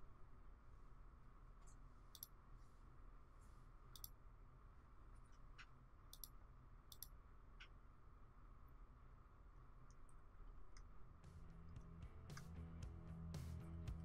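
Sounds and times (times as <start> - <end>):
faint computer mouse clicks: 1.6 - 2.3, 3.9 - 4.2, 5.3 - 7.8.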